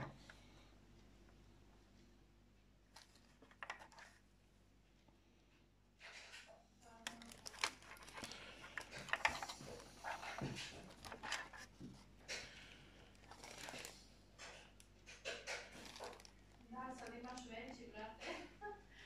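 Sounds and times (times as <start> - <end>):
hands handling small plastic parts: 2.9 - 4.2, 7.0 - 17.5.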